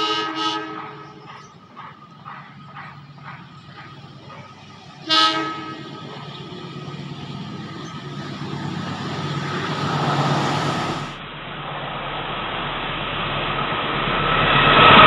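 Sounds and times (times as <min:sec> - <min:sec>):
locomotive engine: 0:00.0 - 0:11.2
train horn blast: 0:00.0 - 0:11.2
train wheels rumbling: 0:00.0 - 0:11.2.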